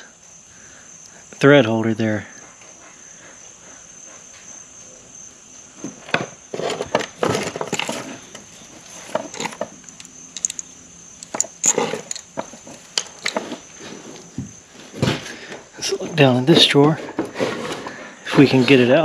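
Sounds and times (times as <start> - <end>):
high insect chirring: 0.0 - 17.0
small parts rattling in drawer: 6.5 - 13.8.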